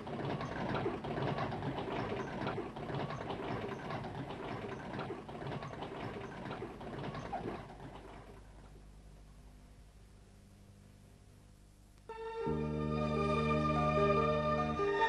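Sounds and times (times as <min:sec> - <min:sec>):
small machine clattering: 0:00.0 - 0:08.8.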